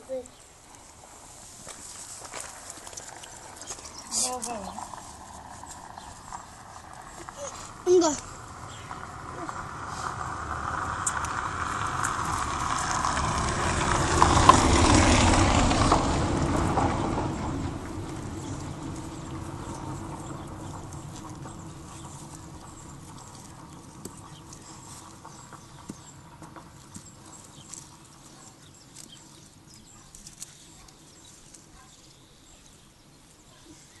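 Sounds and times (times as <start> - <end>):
rumbling noise: 3.4 - 26.9.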